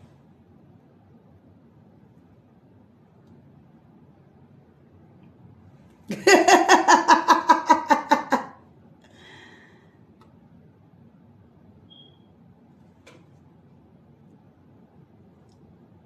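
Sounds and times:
woman laughing out loud: 6.1s - 8.6s.

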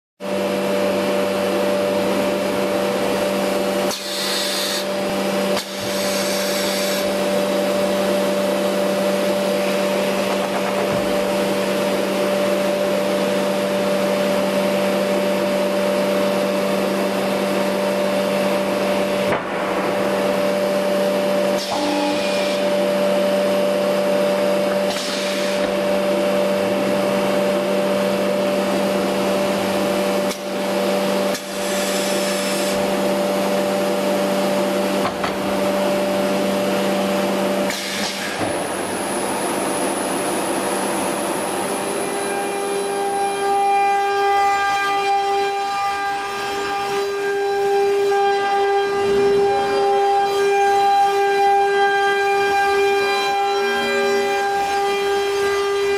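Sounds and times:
machine drone: 0.2s - 55.9s
air hisses: 3.9s - 4.9s.

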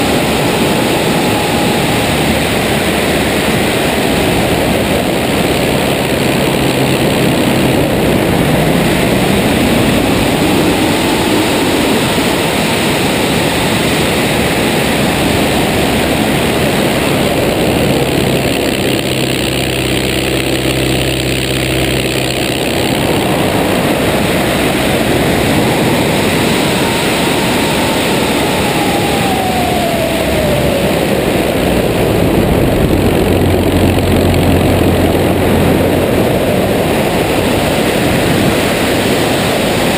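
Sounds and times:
airflow rushing: 0.0s - 39.9s
plane engine and propeller: 0.0s - 39.9s
whistling tone falling in pitch: 24.1s - 31.8s.

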